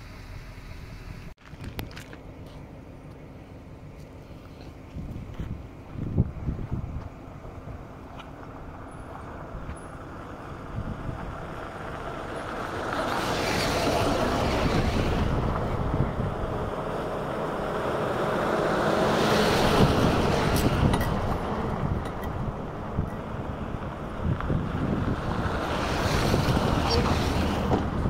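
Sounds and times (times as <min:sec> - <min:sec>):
four-wheel drives passing on gravel: 0:03.9 - 0:28.0
wind on microphone: 0:04.8 - 0:08.8, 0:10.5 - 0:17.2, 0:19.0 - 0:28.0.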